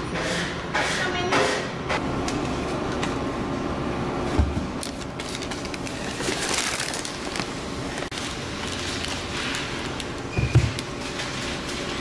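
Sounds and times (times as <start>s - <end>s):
paper bag crinkling and rustling: 4.7s - 12.0s.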